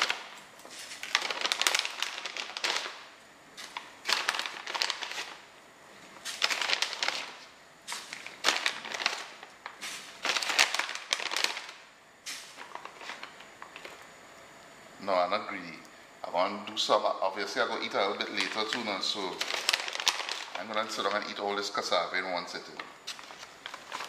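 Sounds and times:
plastic bag crinkling: 0.0s - 5.5s, 6.2s - 14.0s, 17.4s - 22.0s, 22.7s - 24.0s.

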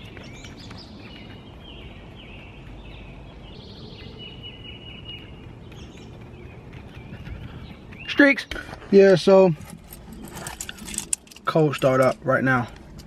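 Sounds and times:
bird trill: 0.0s - 8.3s
songbirds singing and chirping: 0.0s - 13.0s.

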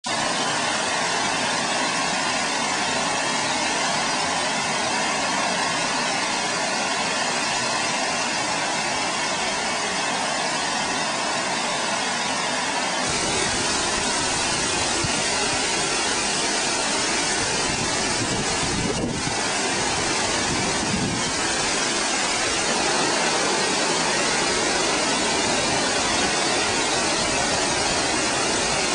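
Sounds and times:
water rushing over dam spillway: 0.0s - 28.9s.

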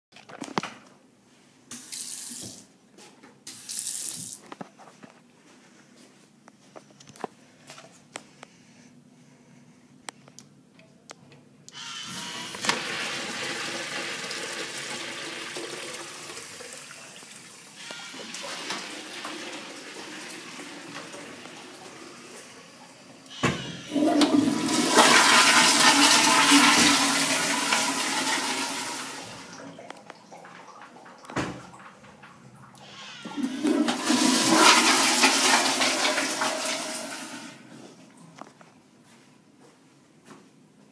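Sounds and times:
toilet flushing: 11.8s - 37.9s
urinal flushing: 11.8s - 38.2s.

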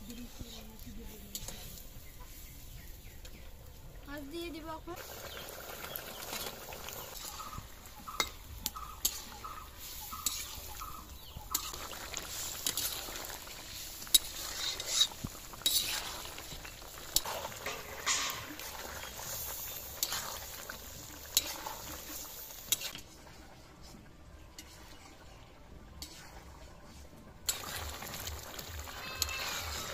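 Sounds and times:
metal utensils clinking and scraping: 0.0s - 1.9s, 6.3s - 10.7s, 11.5s - 23.2s, 27.5s - 29.9s
pot bubbling hiss: 0.0s - 29.9s.

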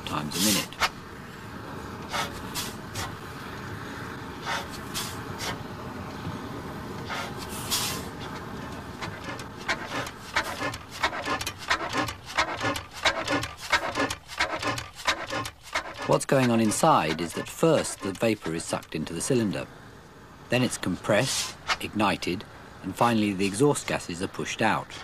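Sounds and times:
engine hissing puffs: 0.0s - 20.5s, 21.1s - 21.9s
engine clattering: 8.2s - 18.9s.

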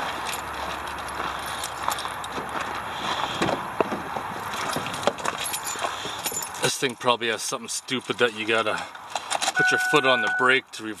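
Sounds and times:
footsteps on gravel: 0.0s - 6.3s.

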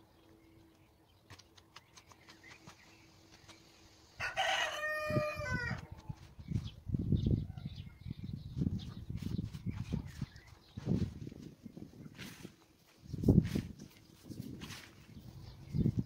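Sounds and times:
rooster crowing: 4.2s - 5.9s.

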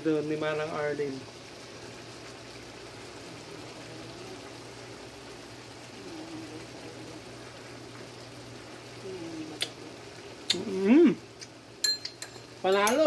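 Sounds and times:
person humming briefly: 5.9s - 7.2s, 9.0s - 9.9s, 10.5s - 11.3s.

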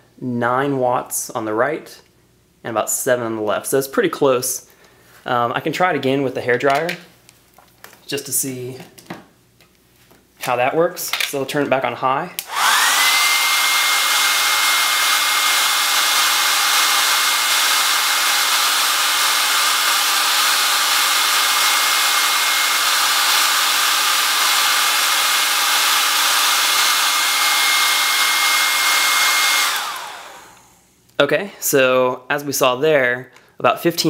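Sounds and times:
hair dryer blowing: 12.4s - 31.0s.

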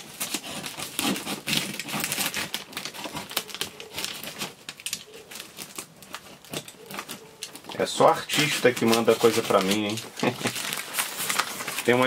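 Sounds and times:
utility knife cutting cardboard: 0.0s - 4.6s
paper and tape crinkling: 0.0s - 12.0s.

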